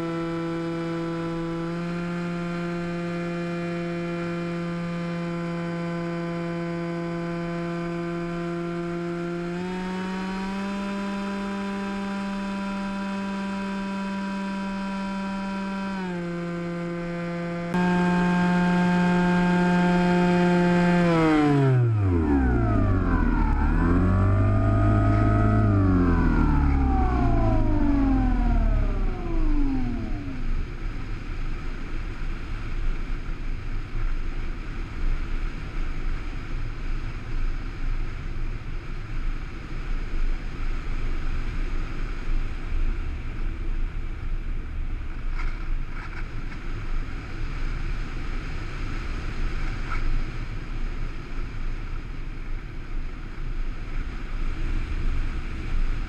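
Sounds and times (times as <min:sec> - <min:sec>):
electric motor and propeller whine: 0:00.0 - 0:34.2.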